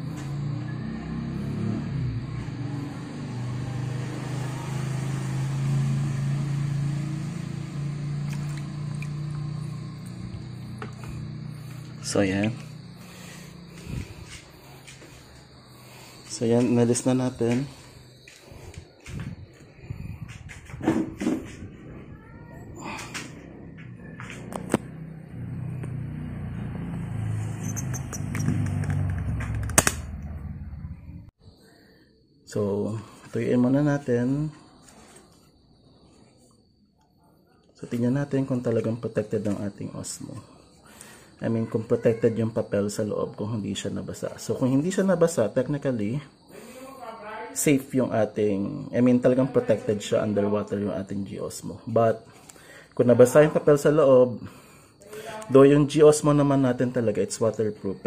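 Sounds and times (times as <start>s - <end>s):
vehicle engine rumbling: 0.0s - 31.4s
light water splashes: 8.3s - 9.4s
sharp clicks: 27.7s - 30.3s.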